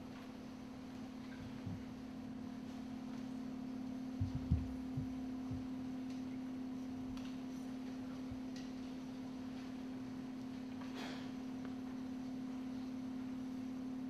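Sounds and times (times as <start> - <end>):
steady low hum: 0.0 - 14.0
soft low thumps: 1.4 - 2.0, 4.1 - 6.0.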